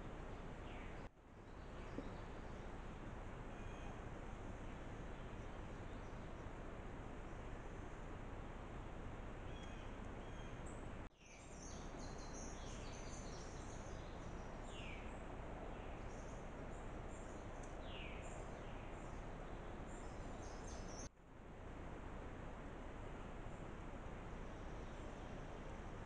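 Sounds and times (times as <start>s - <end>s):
birds chirping and trilling: 9.5s - 21.1s.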